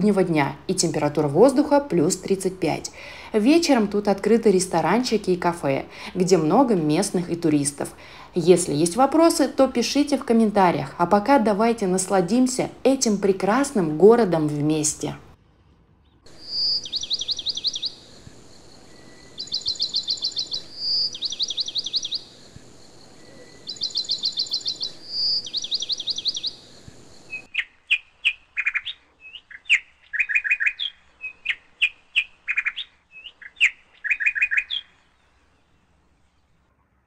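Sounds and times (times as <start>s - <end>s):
songbird trilling: 16.3s - 22.4s, 23.1s - 35.0s.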